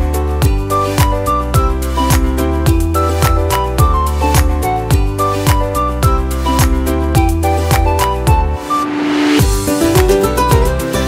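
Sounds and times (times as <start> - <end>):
music with steady beat: 0.0 - 11.0.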